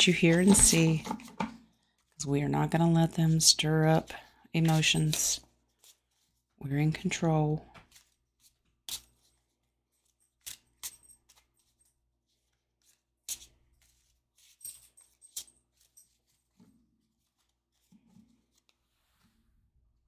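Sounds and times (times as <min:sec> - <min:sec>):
cards being shuffled: 0:04.6 - 0:06.4, 0:07.7 - 0:18.9.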